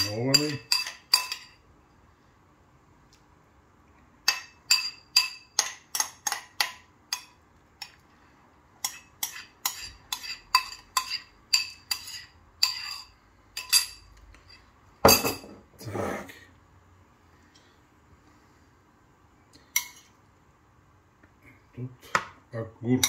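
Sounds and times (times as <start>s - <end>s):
metal spoon clinking on ceramic bowl: 0.0s - 1.6s, 4.2s - 8.0s, 8.8s - 15.6s.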